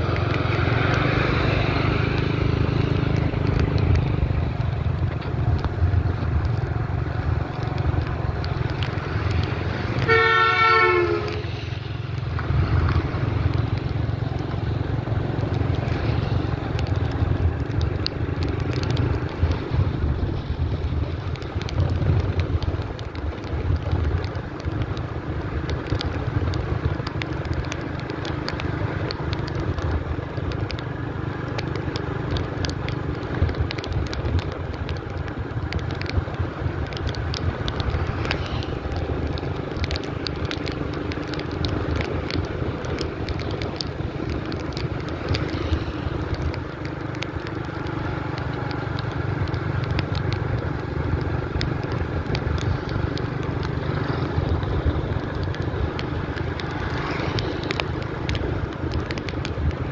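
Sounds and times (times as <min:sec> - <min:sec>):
small crackling clicks: 0:00.0 - 0:59.9.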